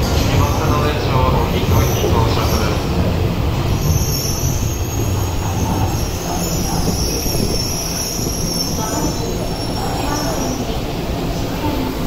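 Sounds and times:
train rumble: 0.0s - 12.0s
high-pitched brake squeal: 3.8s - 10.6s.

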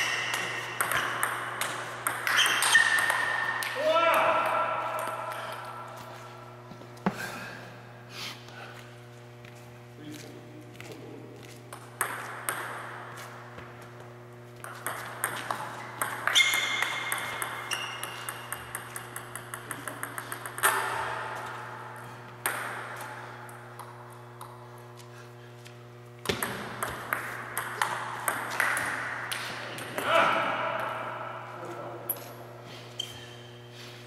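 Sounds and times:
low electrical hum: 0.0s - 34.0s
table tennis ball clicking: 14.6s - 20.8s
ball bouncing to rest: 26.2s - 28.9s.

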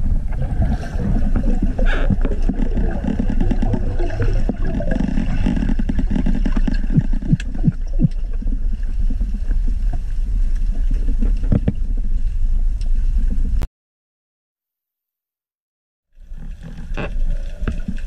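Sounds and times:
underwater rumble of moving water: 0.0s - 13.6s, 16.2s - 18.0s
sharp clicks and pops: 1.8s - 8.2s.

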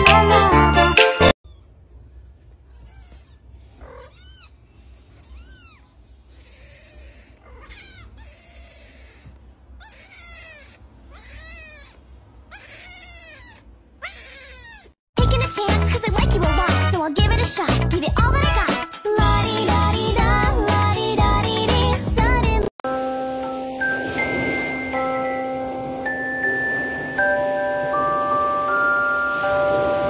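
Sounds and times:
kitten meowing: 2.7s - 4.6s, 5.2s - 15.0s.

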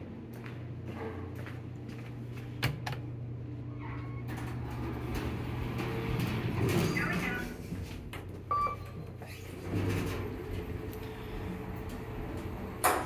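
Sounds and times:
steady low hum: 0.0s - 13.0s
elevator doors sliding open: 3.6s - 13.0s.

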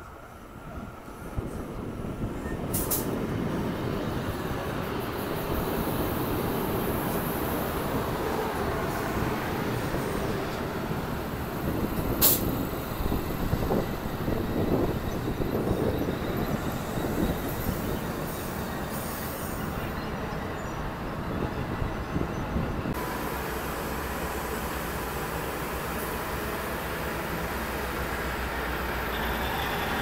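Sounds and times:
train engines and wheels rumbling: 0.0s - 30.0s.

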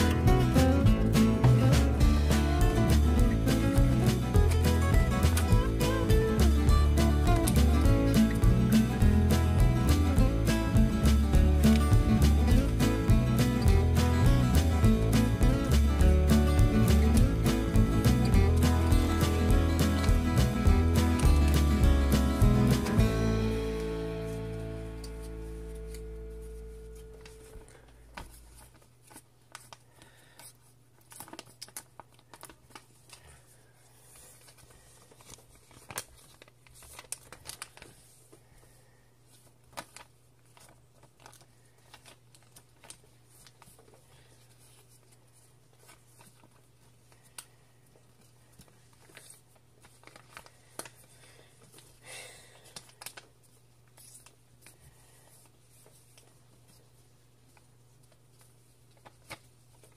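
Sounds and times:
faint low hum: 23.0s - 59.9s
paper crinkling and rustling: 23.7s - 52.0s, 52.6s - 59.9s.

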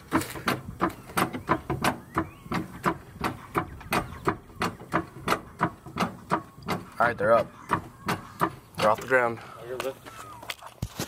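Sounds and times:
hydraulic jack pumping clacks: 0.0s - 9.3s.

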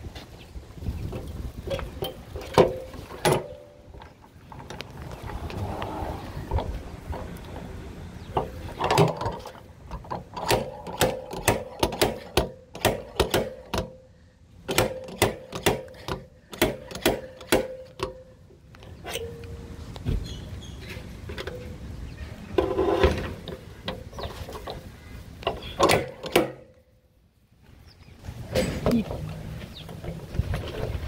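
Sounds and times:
metallic clicks and knocks: 6.5s - 14.0s, 14.7s - 19.6s, 22.6s - 26.8s.

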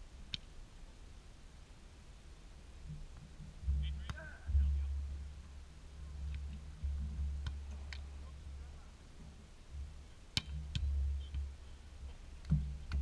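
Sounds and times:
volleyball slaps: 6.3s - 8.2s, 10.3s - 11.5s.

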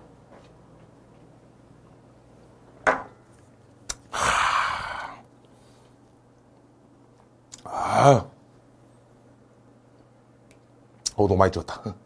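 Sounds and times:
glass set down on wooden table: 2.8s - 3.2s
breathy exhale: 4.1s - 5.9s.

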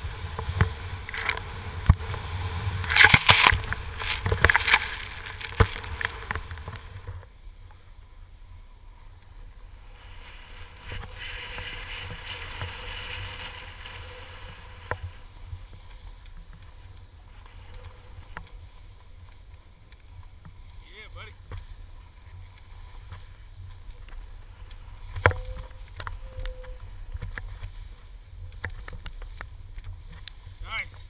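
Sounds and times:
snow spray rushing: 0.0s - 7.0s, 9.8s - 15.4s.

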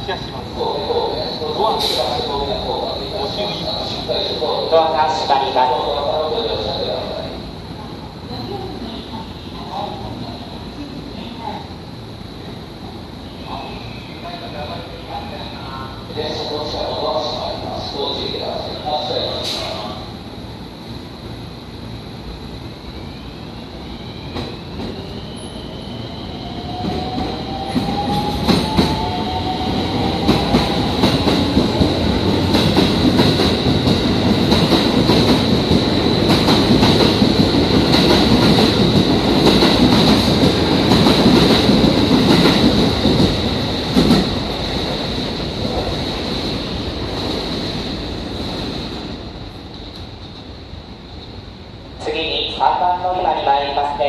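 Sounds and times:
train carriages rumbling: 24.3s - 51.3s.

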